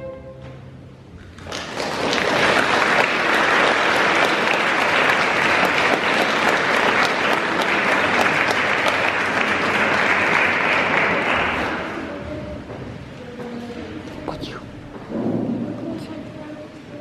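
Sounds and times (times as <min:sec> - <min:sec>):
audience applauding: 0:01.2 - 0:12.0.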